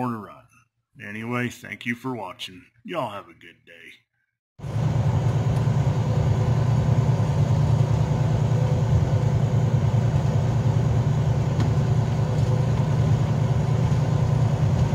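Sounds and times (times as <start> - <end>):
truck diesel engine droning: 4.6 - 14.9.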